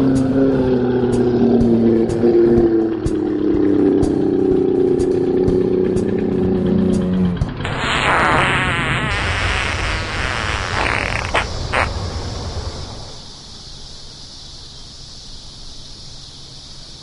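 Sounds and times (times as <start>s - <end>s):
long sputtering fart: 7.6s - 11.9s
steady hiss: 7.6s - 17.0s.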